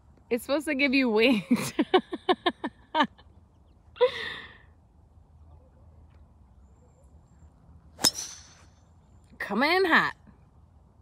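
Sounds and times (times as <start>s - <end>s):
golf driver striking ball: 8.0s - 8.7s.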